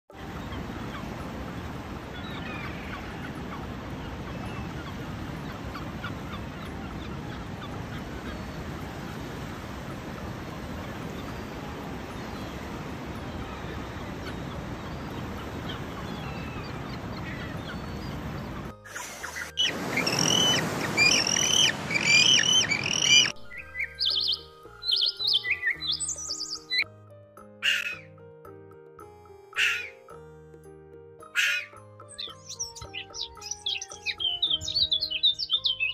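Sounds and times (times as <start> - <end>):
surf on a beach: 0.1 - 23.3
gulls calling: 0.1 - 26.9, 27.6 - 28.2, 29.5 - 30.1, 31.2 - 35.9.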